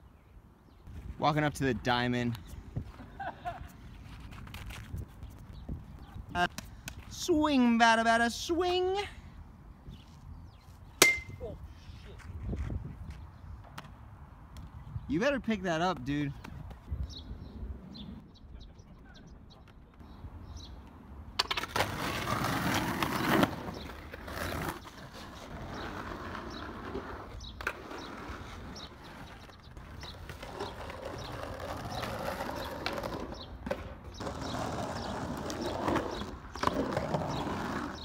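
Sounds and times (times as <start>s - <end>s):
skateboard wheels rolling on asphalt: 0.6s - 10.9s, 19.3s - 38.0s
skateboards clacking on ground: 21.4s - 38.0s.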